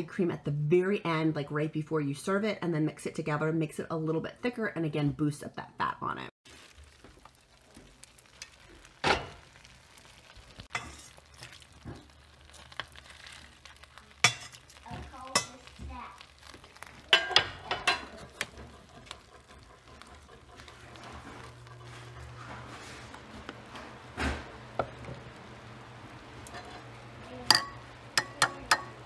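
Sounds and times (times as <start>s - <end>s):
ladle stirring soup: 10.6s - 25.1s.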